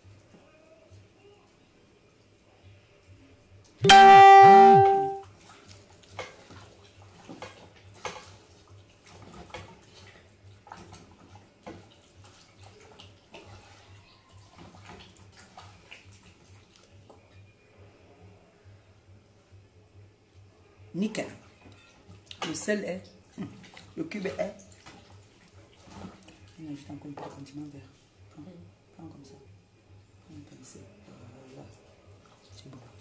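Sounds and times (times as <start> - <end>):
buzzy horn-like tone: 3.8 - 5.2.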